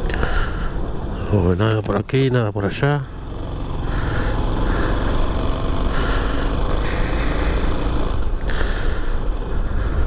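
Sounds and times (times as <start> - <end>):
wind and road noise: 0.0 - 10.0
motorcycle engine running: 3.0 - 10.0.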